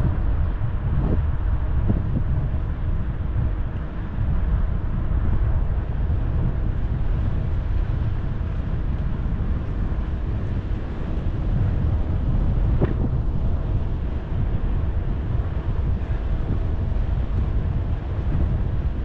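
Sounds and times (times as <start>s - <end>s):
tyre and road noise: 0.0s - 19.0s
wind rushing over microphone: 0.0s - 19.0s.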